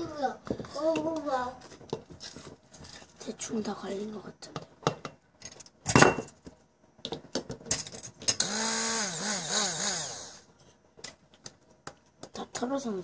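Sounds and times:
stick blender motor whine: 0:08.4 - 0:10.5.

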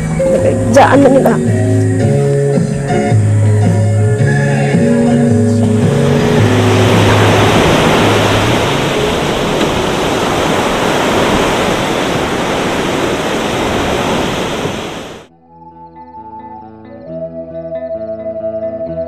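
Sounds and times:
ocean surf breaking: 0:04.8 - 0:15.3.

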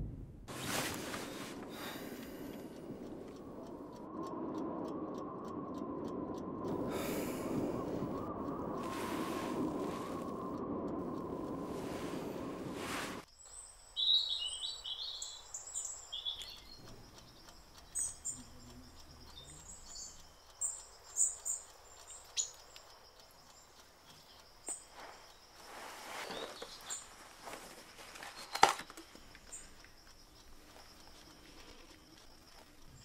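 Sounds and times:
low rumbling noise: 0:00.0 - 0:13.3
rustling: 0:00.5 - 0:02.1, 0:11.7 - 0:13.3, 0:24.9 - 0:29.8
birds chirping: 0:01.2 - 0:33.0.

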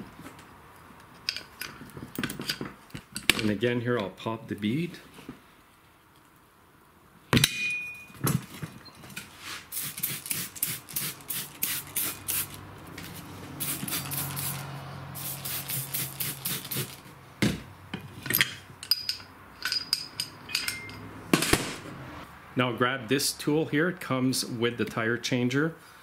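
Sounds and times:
spray bottle squirts: 0:09.7 - 0:12.6, 0:13.6 - 0:14.6, 0:15.2 - 0:17.0
light metal clinks: 0:18.2 - 0:21.1.

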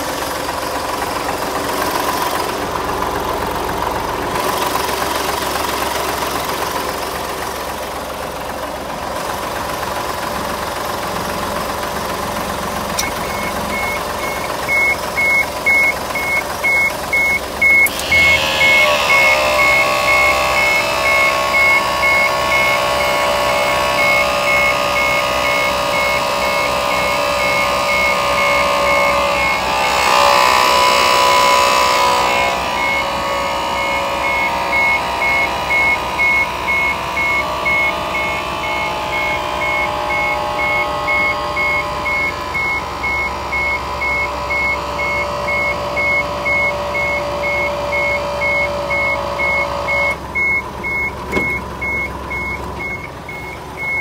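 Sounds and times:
truck warning beeper: 0:12.9 - 0:54.0.

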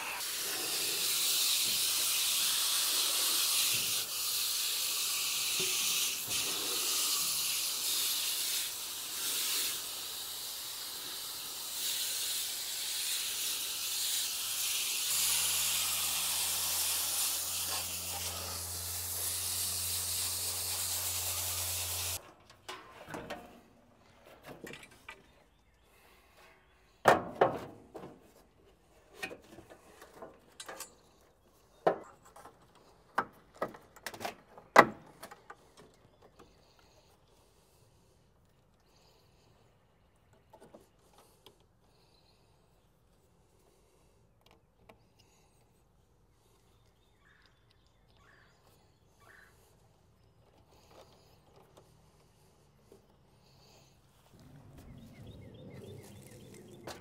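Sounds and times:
hose sprayer hissing water: 0:00.0 - 0:22.2.

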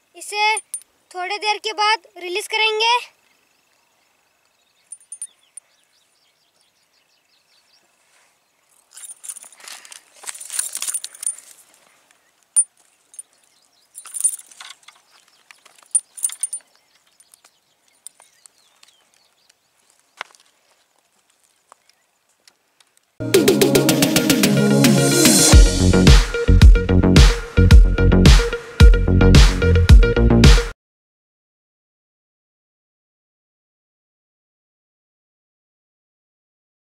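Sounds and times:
sharp light clicks and clinks: 0:00.5 - 0:00.9, 0:04.9 - 0:05.7, 0:08.8 - 0:11.7, 0:12.6 - 0:19.6
rustling: 0:07.8 - 0:23.2.

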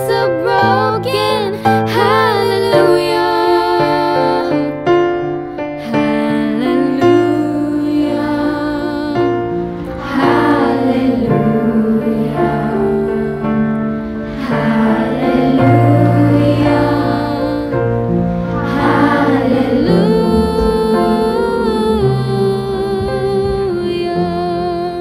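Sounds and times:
woman singing: 0:00.0 - 0:04.7, 0:05.8 - 0:09.4, 0:19.8 - 0:25.0
sustained instrumental chords: 0:00.0 - 0:25.0.

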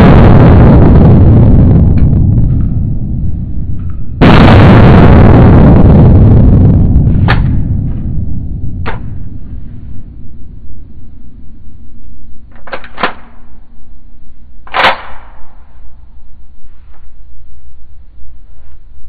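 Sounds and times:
loud gunshot with echo: 0:04.2 - 0:09.4.

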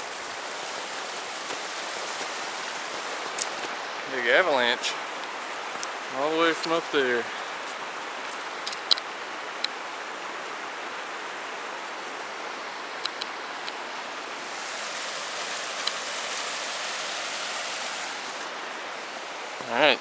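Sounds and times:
creek running: 0:00.0 - 0:20.0.

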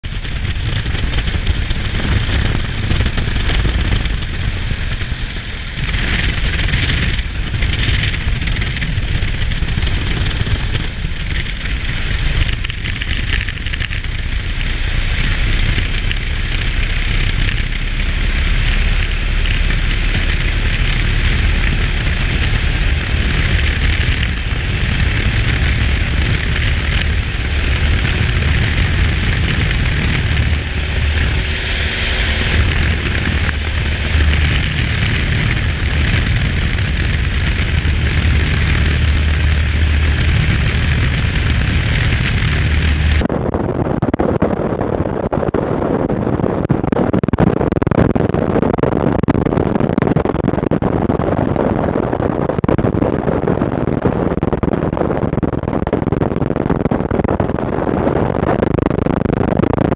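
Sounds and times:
propeller plane engine running: 0:00.0 - 0:44.1.

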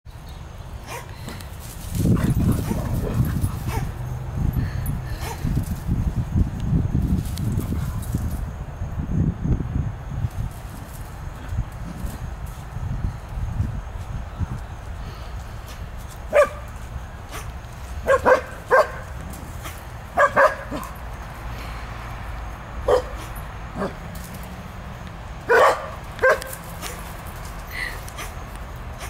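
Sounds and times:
dog barking high-pitched: 0:16.3 - 0:16.6, 0:18.0 - 0:19.0, 0:20.2 - 0:20.9, 0:22.9 - 0:23.2, 0:25.5 - 0:26.5.

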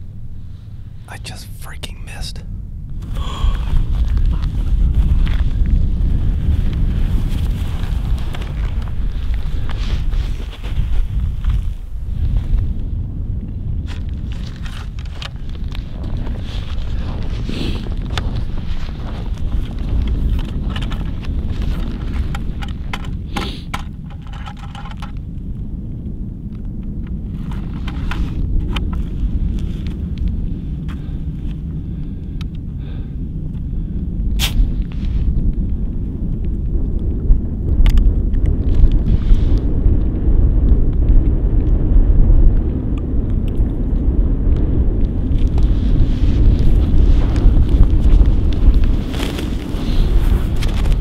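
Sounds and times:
wind buffeting microphone: 0:02.1 - 0:51.0
sharp clicks and crunches: 0:13.8 - 0:25.2, 0:37.7 - 0:39.6, 0:46.4 - 0:51.0.

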